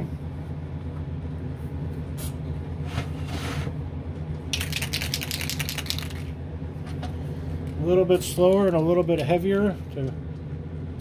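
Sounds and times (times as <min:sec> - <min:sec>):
exhaust fan hum: 0:00.0 - 0:11.0
spray can ball rattling: 0:04.5 - 0:06.4.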